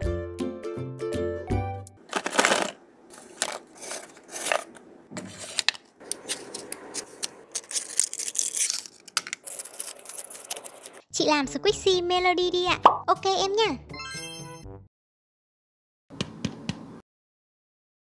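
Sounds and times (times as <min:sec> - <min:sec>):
paper rustling and crinkling: 0:02.1 - 0:11.0.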